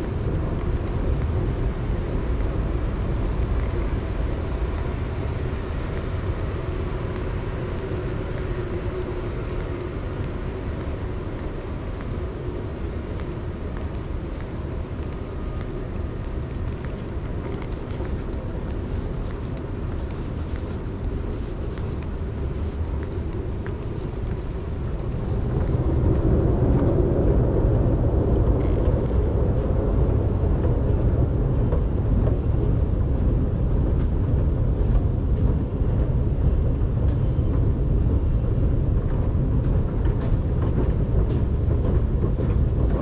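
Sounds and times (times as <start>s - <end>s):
station low rumble and hum: 0.0s - 43.0s.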